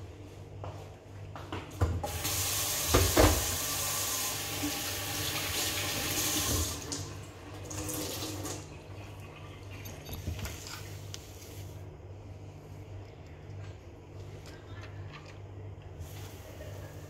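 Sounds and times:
tap running into sink: 0:02.8 - 0:03.7.

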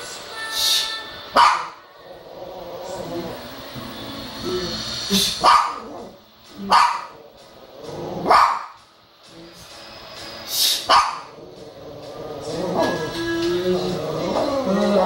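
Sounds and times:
small dog barking: 0:01.4 - 0:01.8, 0:05.4 - 0:05.9, 0:06.6 - 0:07.2, 0:08.3 - 0:08.8, 0:10.9 - 0:11.3.

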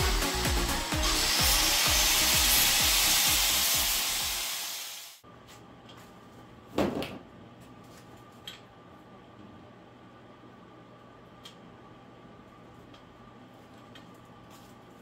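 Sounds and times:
power tool grinding steel: 0:00.1 - 0:05.2.

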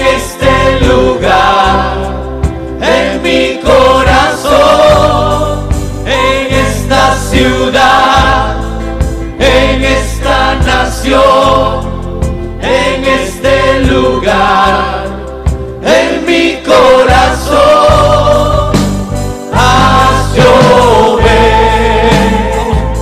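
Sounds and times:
choir singing in harmony: 0:00.0 - 0:23.0
instrumental accompaniment with bass: 0:00.0 - 0:23.0.

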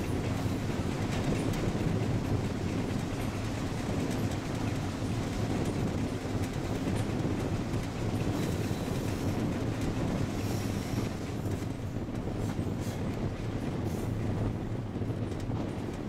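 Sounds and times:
rumbling wheel and rail noise: 0:00.0 - 0:16.0.

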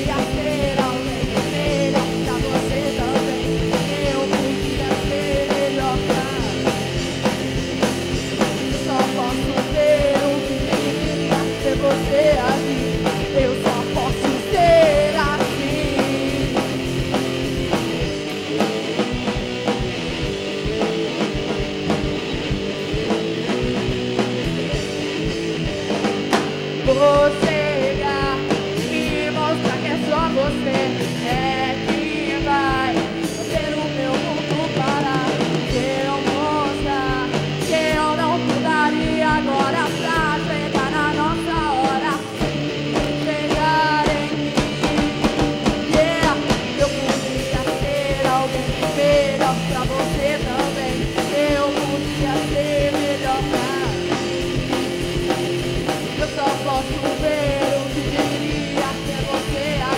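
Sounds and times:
woman singing: 0:00.0 - 0:17.7, 0:26.8 - 0:59.9
rock band playing live: 0:00.0 - 0:59.9.

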